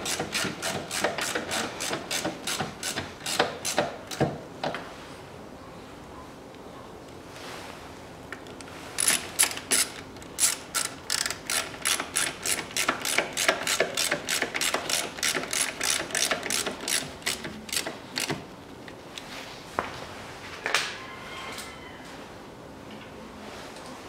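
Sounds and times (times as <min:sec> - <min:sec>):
ratchet wrench clicking: 0:00.0 - 0:04.2, 0:09.0 - 0:18.4.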